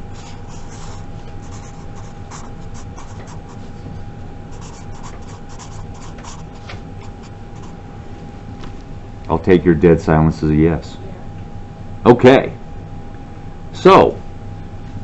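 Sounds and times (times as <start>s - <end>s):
marker scratching on paper: 0.0s - 3.7s, 4.5s - 7.8s
faint steady hum: 0.0s - 15.0s.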